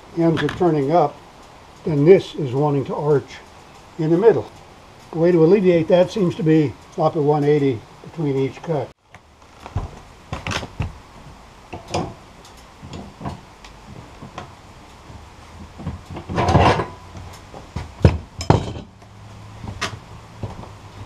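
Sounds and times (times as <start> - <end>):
footsteps on wooden deck: 9.5 - 11.4, 17.2 - 18.4, 19.6 - 21.0
metal clanks and knocks: 11.7 - 12.2, 12.8 - 14.5, 15.6 - 19.0
scraping rattle: 15.8 - 17.5.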